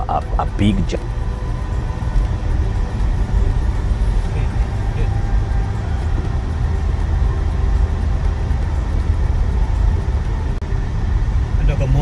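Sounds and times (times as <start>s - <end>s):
car engine and tyre rumble: 0.0s - 12.0s.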